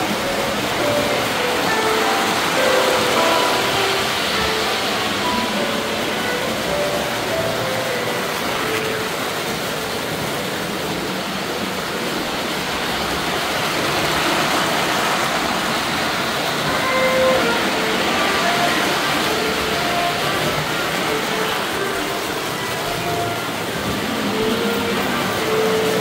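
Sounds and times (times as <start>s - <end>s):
brief melody notes: 0.0s - 9.2s
metal wheels rumbling on track: 0.0s - 26.0s.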